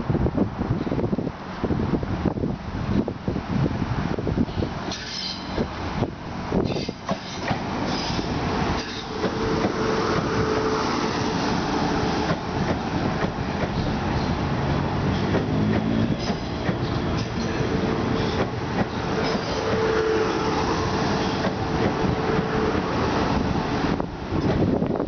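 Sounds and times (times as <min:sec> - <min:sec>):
train motor humming: 0:00.6 - 0:25.0
train wheels on rails: 0:04.0 - 0:25.0.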